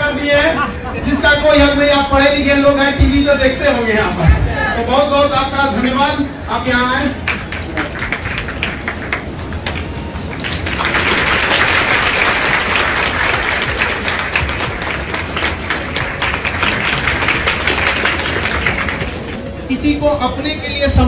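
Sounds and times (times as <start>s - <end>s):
audience applauding: 7.2s - 19.4s.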